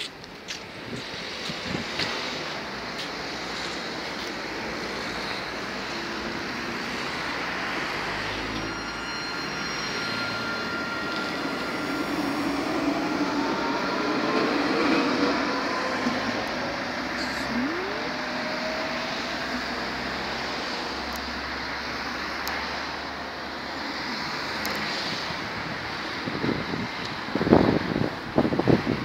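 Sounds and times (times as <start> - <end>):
tram rumble: 0.0 - 29.0
motor whine rising in pitch: 9.6 - 20.4.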